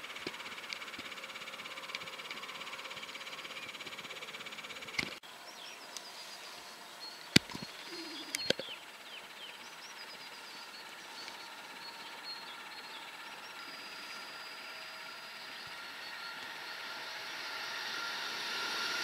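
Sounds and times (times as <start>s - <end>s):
small birds chirping: 0.0s - 19.0s
sharp clicks: 7.2s - 8.8s.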